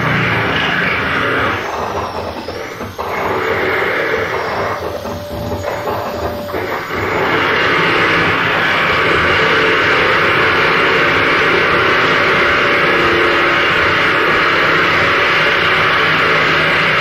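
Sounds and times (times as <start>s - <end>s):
metal grinding: 0.0s - 15.2s.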